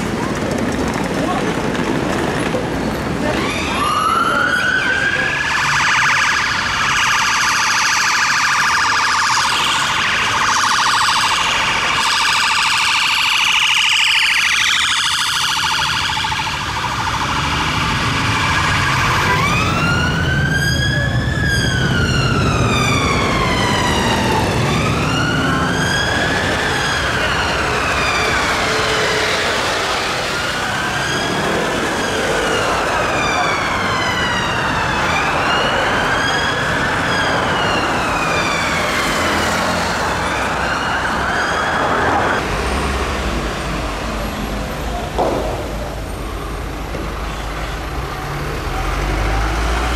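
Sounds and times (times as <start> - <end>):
wailing siren: 3.2 - 42.8
yelping siren: 3.3 - 42.4.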